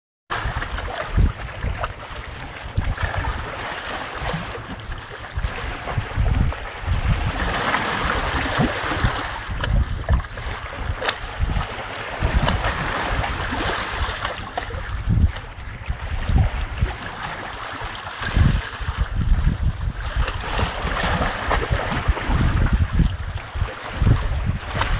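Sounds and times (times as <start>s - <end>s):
stream water splashing: 0.3s - 15.0s, 20.1s - 24.9s
wind buffeting microphone: 0.3s - 24.9s.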